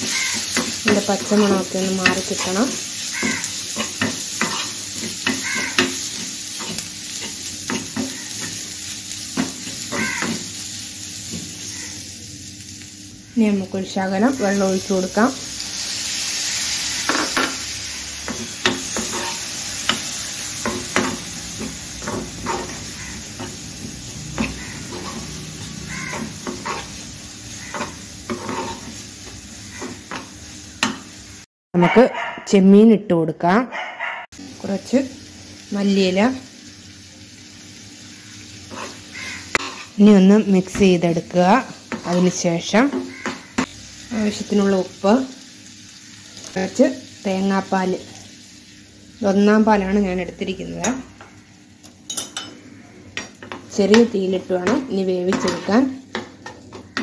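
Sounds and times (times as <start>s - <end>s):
metal spoon scraping a pan: 0.0s - 8.7s, 16.7s - 31.0s, 38.7s - 40.0s, 53.2s - 57.0s
frying oil sizzling: 0.0s - 31.5s, 34.3s - 57.0s.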